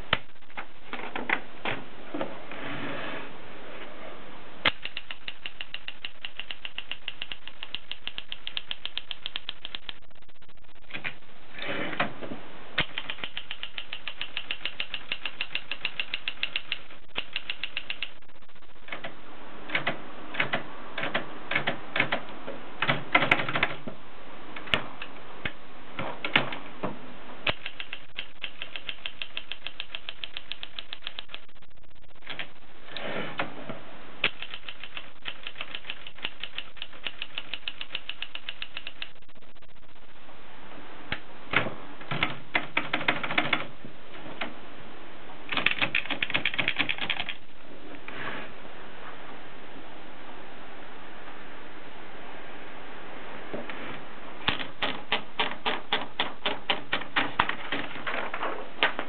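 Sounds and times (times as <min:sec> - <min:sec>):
typewriter keys clacking: 0:04.7 - 0:10.0, 0:12.8 - 0:18.2, 0:27.5 - 0:31.4, 0:34.2 - 0:39.2, 0:45.5 - 0:47.4, 0:54.5 - 0:58.2.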